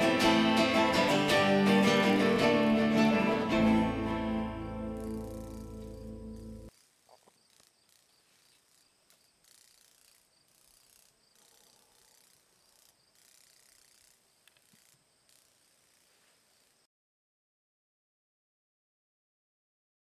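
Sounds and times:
acoustic guitar music: 0.0 - 6.7
insects buzzing: 2.9 - 16.9
faint clicks: 12.2 - 15.5.

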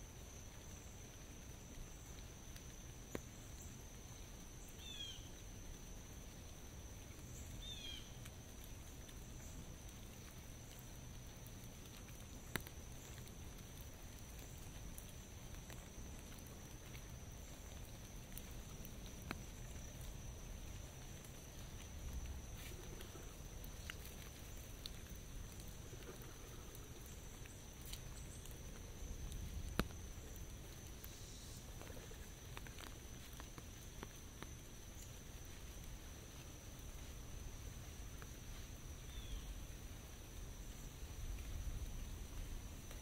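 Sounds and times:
rain dripping on umbrella: 0.0 - 43.0.

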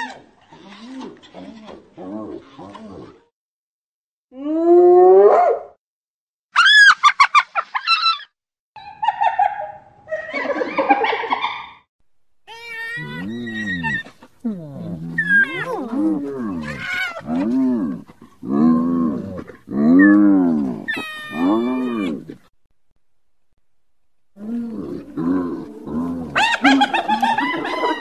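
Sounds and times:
hyenas calling: 12.5 - 22.4, 24.4 - 28.0.

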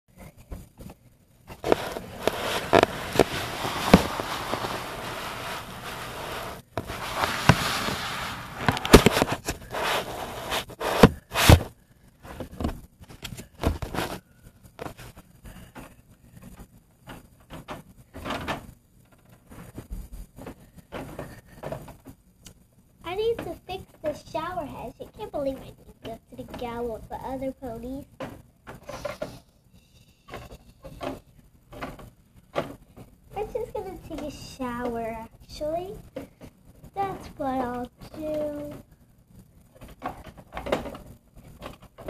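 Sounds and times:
plastic toys scraping and knocking: 1.5 - 22.2, 23.1 - 29.4, 30.3 - 38.9, 39.8 - 42.0.

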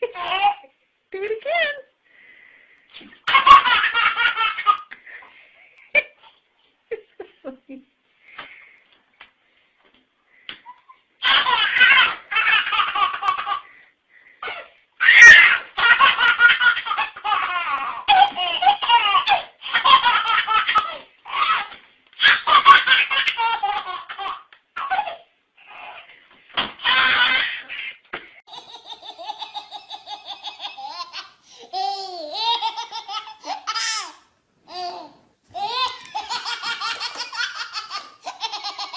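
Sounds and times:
baby laughing: 0.0 - 0.7, 3.2 - 4.9, 10.6 - 13.7, 14.4 - 26.1, 26.8 - 27.9, 28.5 - 38.9
baby squealing: 15.0 - 15.7.

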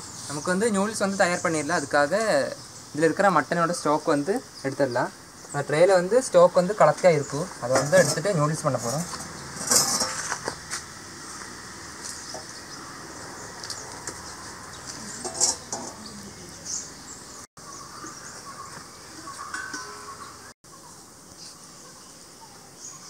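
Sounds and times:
metal scraping on brick: 7.8 - 10.6, 15.1 - 16.1
metal tray clattering: 9.5 - 10.5, 15.2 - 16.1.

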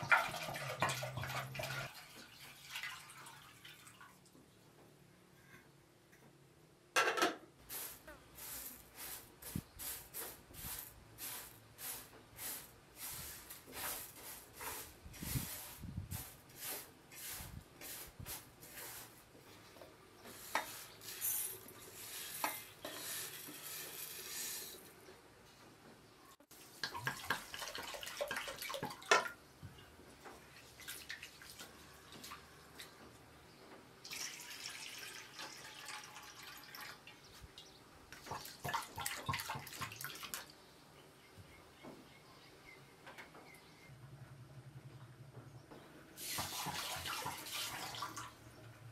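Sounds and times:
rice and water sloshing in a basin: 0.0 - 4.3, 7.6 - 24.9, 26.5 - 29.4, 30.3 - 33.0, 34.0 - 40.5, 46.2 - 48.5
rice grains scraping a metal tray: 7.7 - 19.3, 20.2 - 24.9.

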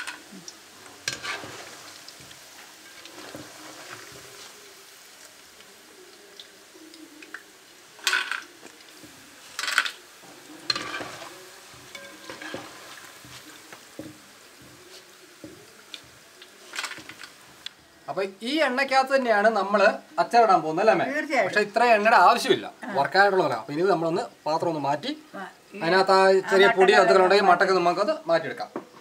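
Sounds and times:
oil sizzling: 0.0 - 29.0
metal strainer clinking and scraping: 1.0 - 1.8, 9.5 - 13.4.

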